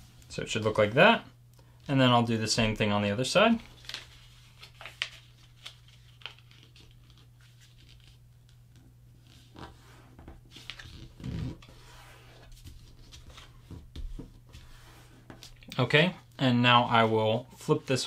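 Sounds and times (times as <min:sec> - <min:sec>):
paper folding and creasing: 0:03.6 - 0:15.7.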